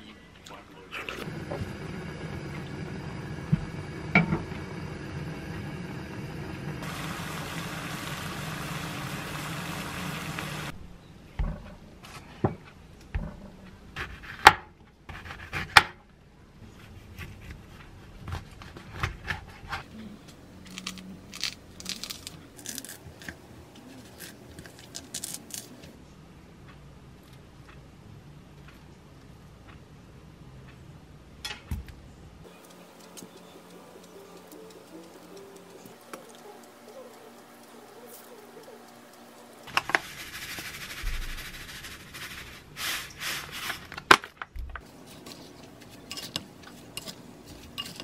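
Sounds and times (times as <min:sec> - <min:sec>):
steady hiss over pot: 0:01.1 - 0:10.8, 0:32.5 - 0:43.9
wet crackling of peeling fruit: 0:20.6 - 0:25.9.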